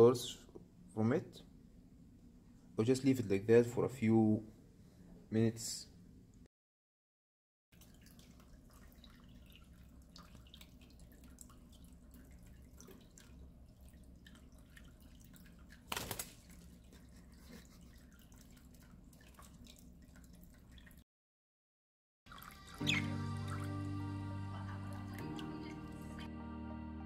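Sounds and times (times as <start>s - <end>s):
water dripping and trickling: 7.7s - 21.0s, 22.3s - 24.1s.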